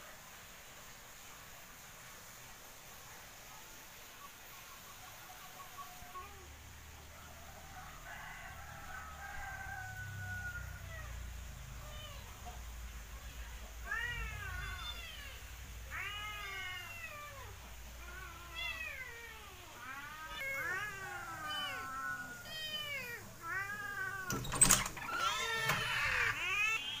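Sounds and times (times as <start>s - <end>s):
cats meowing: 10.2s - 27.0s.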